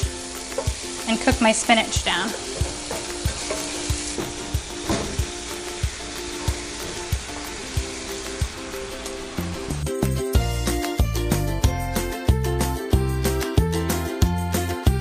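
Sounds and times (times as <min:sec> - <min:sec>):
food sizzling in a skillet: 0:00.0 - 0:11.4
quiet background music with beat: 0:00.0 - 0:15.0.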